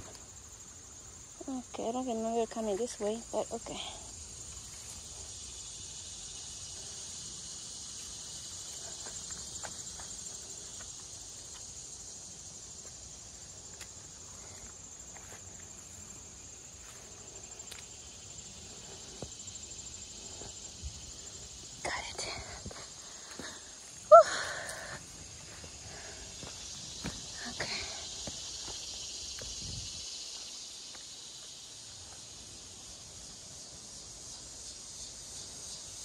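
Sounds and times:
crickets and insects trilling: 0:00.0 - 0:36.0
footsteps on rocky path: 0:13.7 - 0:16.2, 0:22.6 - 0:24.0, 0:24.7 - 0:29.7.

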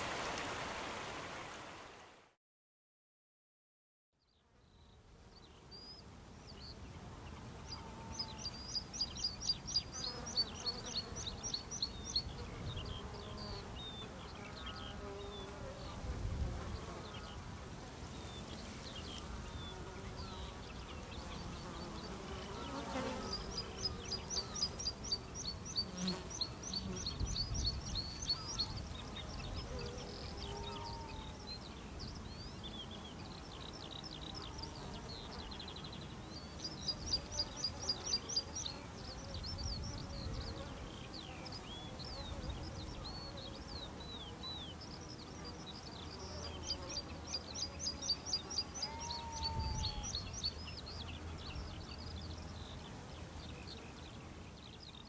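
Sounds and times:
songbird song: 0:04.2 - 0:55.0
insects buzzing: 0:06.4 - 0:17.4, 0:18.4 - 0:53.9
bird chirps: 0:07.8 - 0:15.0.

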